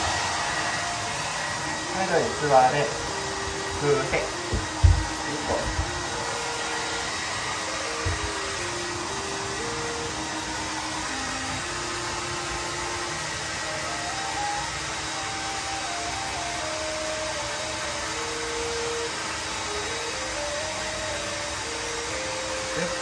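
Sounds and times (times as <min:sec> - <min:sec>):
hair dryer running: 0:00.0 - 0:23.0
soft low thump: 0:04.5 - 0:05.1.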